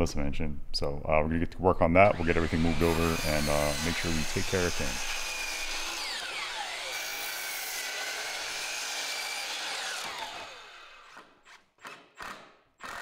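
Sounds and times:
miter saw motor winding down: 2.1 - 11.2.

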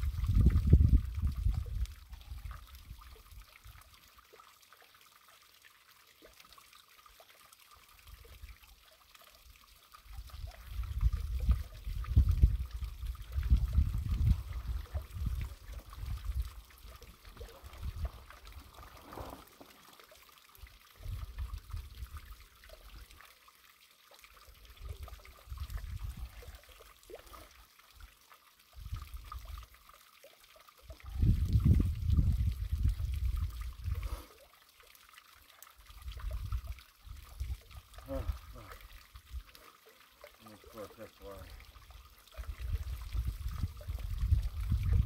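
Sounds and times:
wind gusting over microphone: 0.0 - 1.8, 10.9 - 16.5, 31.1 - 34.0, 42.5 - 45.0.

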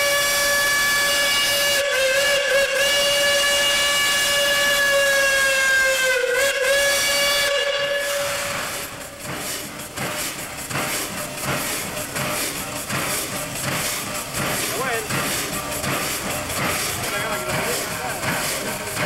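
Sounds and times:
steam locomotive whistle: 0.0 - 9.2
steam hissing: 0.0 - 19.0.

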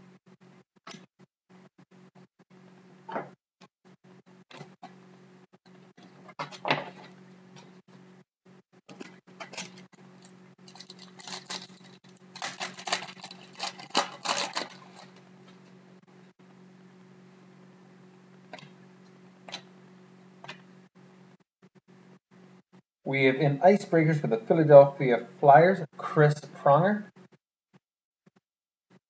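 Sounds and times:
trading cards clicking and rustling: 8.9 - 15.2.

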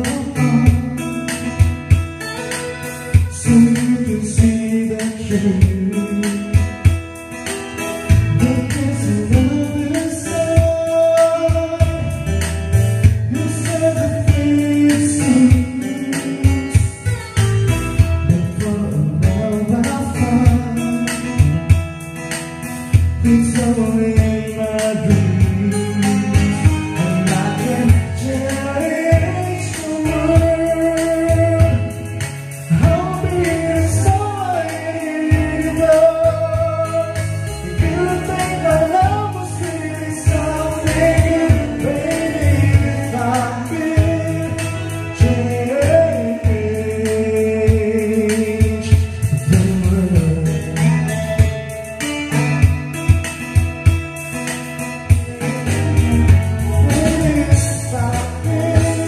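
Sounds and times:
person singing: 0.0 - 12.5, 13.1 - 17.4, 18.0 - 21.8, 23.2 - 53.2, 55.0 - 59.0
instrumental backing track: 0.0 - 59.0.

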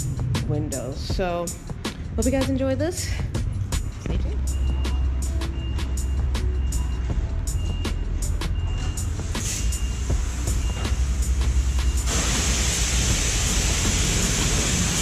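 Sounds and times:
background music beat: 0.0 - 15.0
pressure washer spraying water: 9.2 - 15.0.

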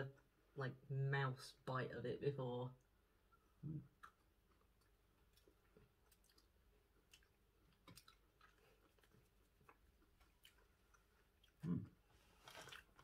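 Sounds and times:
crunchy chewing: 4.0 - 11.7.

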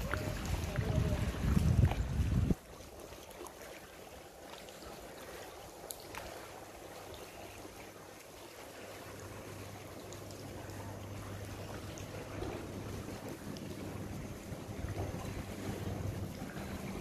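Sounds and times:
water lapping and dripping: 0.0 - 17.0
low steady hum: 4.1 - 17.0.

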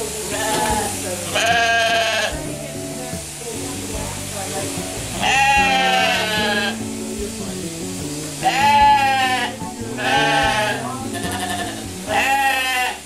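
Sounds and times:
sheep bleating: 0.3 - 2.4, 5.2 - 6.8, 8.4 - 13.0.

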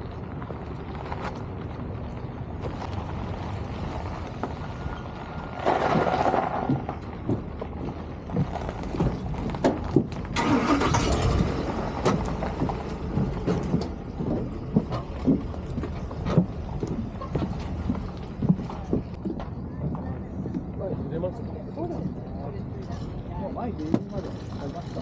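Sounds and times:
knocks and clatter: 11.1 - 19.6.

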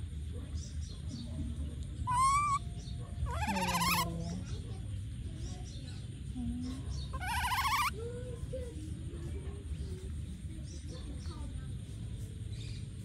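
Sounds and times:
baby macaque squealing: 2.0 - 4.2, 7.1 - 8.0.

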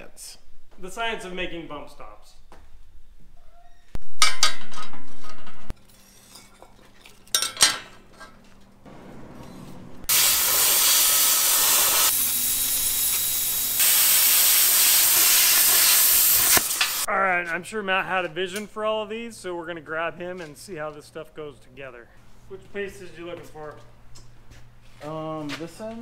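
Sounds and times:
plasma cutter hissing: 10.1 - 17.1.

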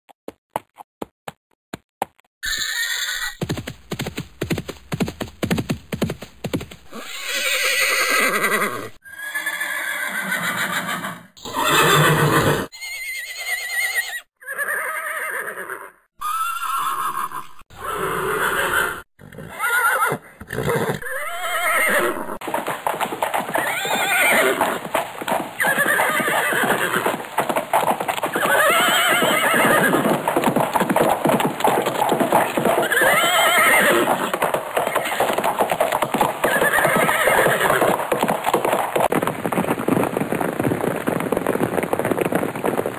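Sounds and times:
horse neighing: 2.4 - 3.4, 6.9 - 22.4, 23.5 - 24.8, 25.6 - 27.1, 28.3 - 30.1, 32.3 - 35.6, 36.4 - 37.9.

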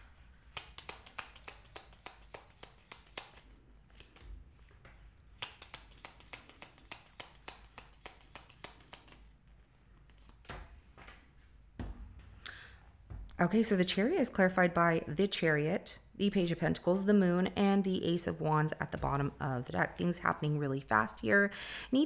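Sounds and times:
cards being shuffled: 0.4 - 4.6, 5.2 - 10.8.

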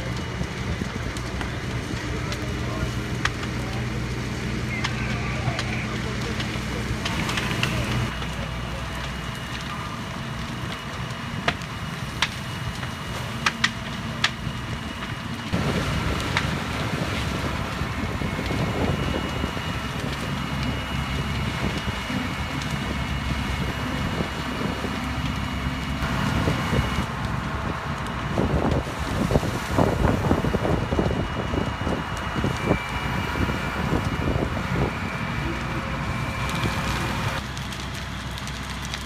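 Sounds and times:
fire engines rumbling: 0.0 - 39.0
heavy low rumble: 0.0 - 39.0
wind buffeting microphone: 15.5 - 37.4.

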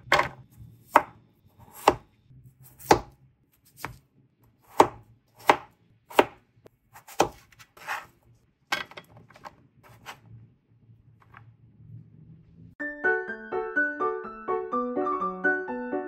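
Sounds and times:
knife chopping on plastic board: 0.0 - 2.0, 2.7 - 4.0, 4.6 - 8.1
knife scraping chunks off board: 7.0 - 8.2, 8.8 - 10.2
piano music: 12.8 - 16.0.

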